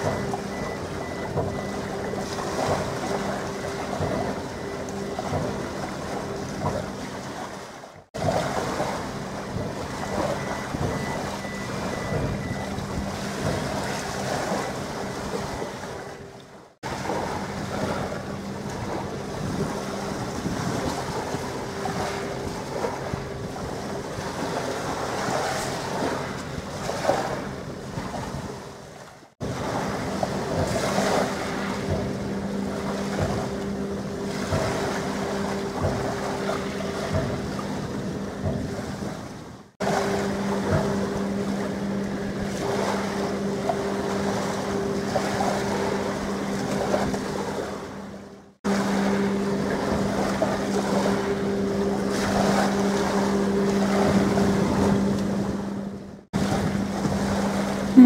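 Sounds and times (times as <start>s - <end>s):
open water washing: 0.0s - 58.0s
steady low hum: 0.0s - 58.0s
wind buffeting microphone: 17.0s - 28.8s.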